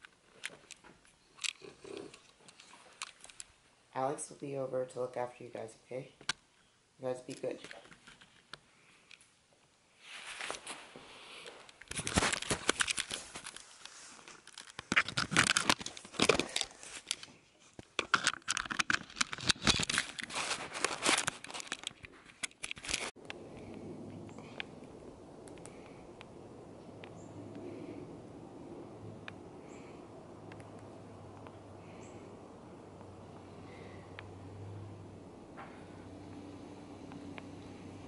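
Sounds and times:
camera handling rustling and clicks: 0.0 - 3.5, 11.7 - 23.2
low outdoor ambience rumble: 11.9 - 38.0.

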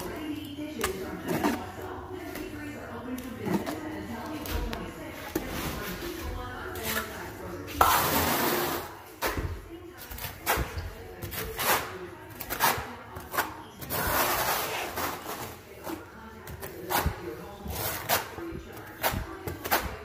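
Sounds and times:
trowel scraping mortar: 7.8 - 8.9, 11.3 - 15.6.

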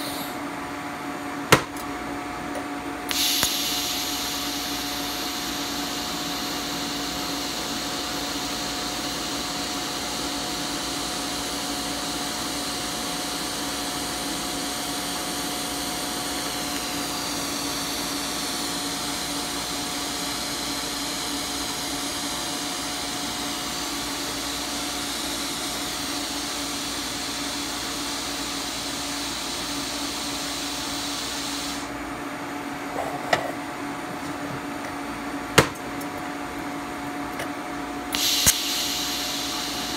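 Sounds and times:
welding arc hissing: 0.0 - 0.4, 3.1 - 19.2, 23.6 - 31.9, 38.1 - 39.9
electrical hum: 0.0 - 39.9
sharp click: 3.1 - 3.8, 38.2 - 39.3.

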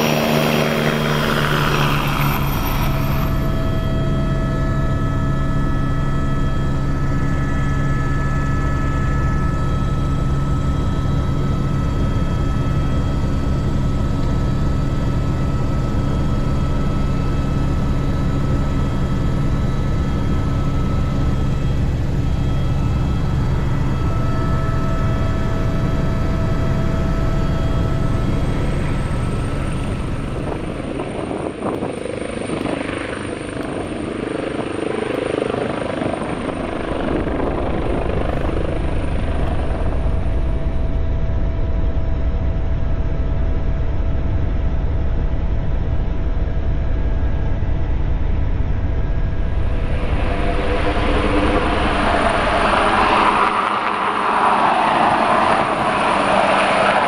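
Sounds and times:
helicopter flying past: 0.0 - 43.6, 44.2 - 57.0
helicopter drone inside cockpit: 0.0 - 57.0.

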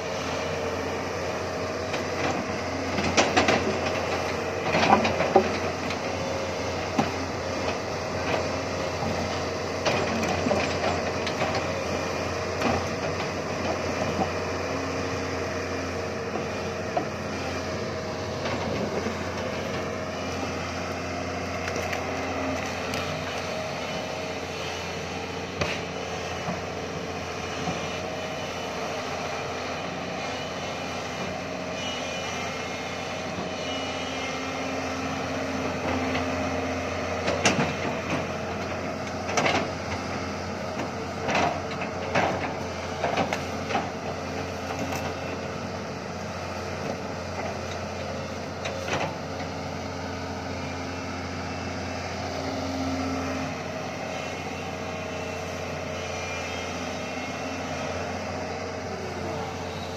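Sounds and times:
diesel engine running: 0.0 - 59.9
hydraulic whine: 0.0 - 59.9
excavator clanks and knocks: 1.7 - 15.3, 16.0 - 24.2, 25.3 - 28.4, 35.2 - 49.7.

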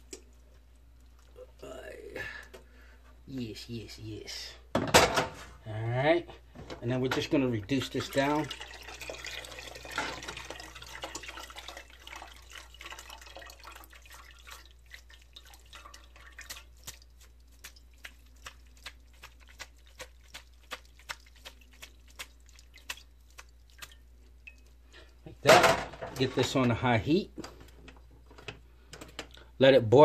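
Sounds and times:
liquid dripping into metal pot: 8.0 - 25.4.

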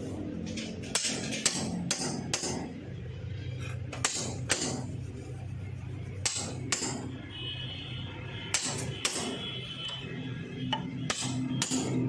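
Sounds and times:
hammer striking steel rod: 0.8 - 2.8, 3.9 - 4.9, 6.2 - 7.1, 8.5 - 9.4, 10.7 - 12.0.

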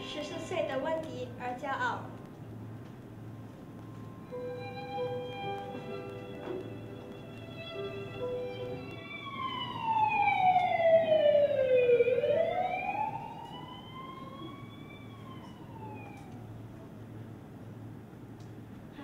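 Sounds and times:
siren wail over speakers: 8.4 - 16.7.

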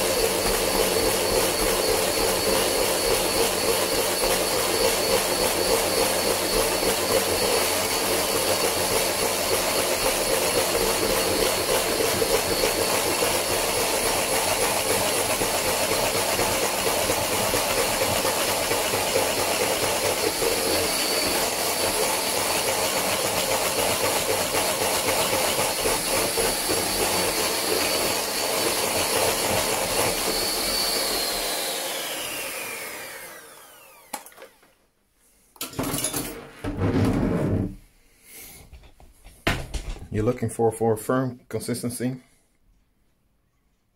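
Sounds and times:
electric hand mixer whine: 0.0 - 34.8.

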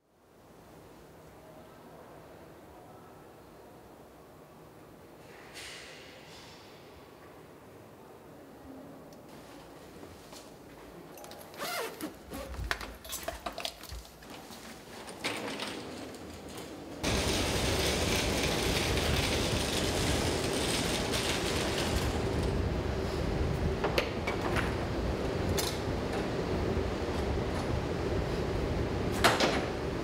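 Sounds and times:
loud steady rumbling: 17.0 - 23.9.

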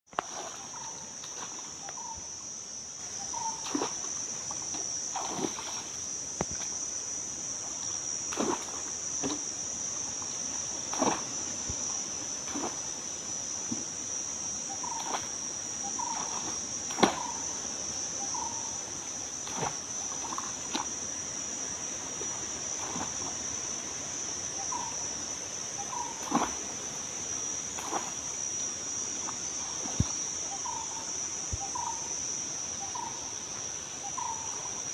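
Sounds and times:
insects droning: 0.1 - 34.9
wooden pole splashing in water: 5.2 - 5.9, 8.3 - 9.4, 10.9 - 11.3, 16.2 - 17.3, 26.2 - 26.6, 27.8 - 28.2.

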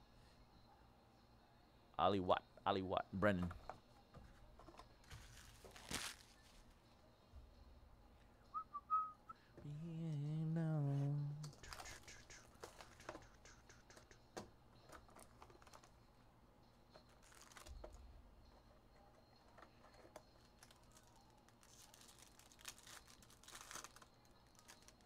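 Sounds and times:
foil wrappers crinkling: 5.0 - 6.6, 17.1 - 17.9, 19.9 - 25.0
cardboard flaps torn open: 5.1 - 6.3.

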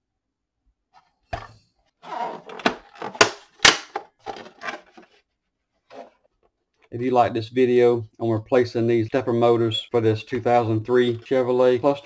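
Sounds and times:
plastic clacks and knocks: 2.4 - 5.2
rubbing and rustling: 4.1 - 6.8.

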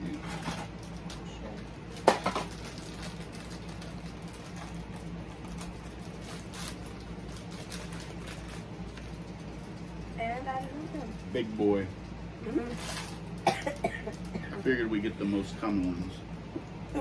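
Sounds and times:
low steady hum: 0.0 - 17.0
packaging rustling and crinkling: 0.1 - 10.1, 12.6 - 13.3.

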